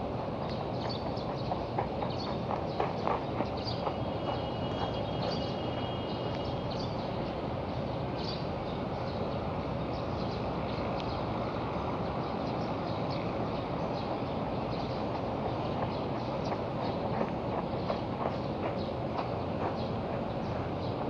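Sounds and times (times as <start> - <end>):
faint light ticks: 0.4 - 1.0, 6.3 - 6.5, 10.8 - 11.2.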